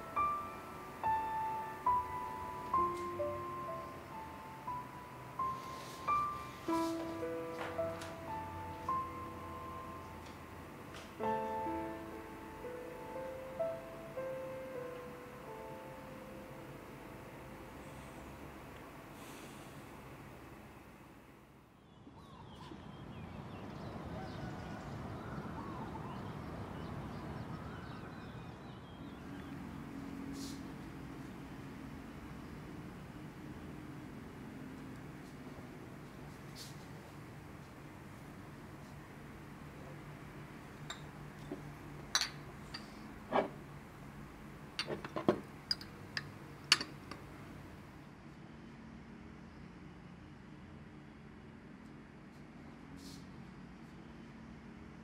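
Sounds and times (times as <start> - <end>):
low city hum: 0.0 - 55.0
birds chirping: 21.8 - 30.4
glass bottles clinking: 40.9 - 43.6, 44.8 - 47.2.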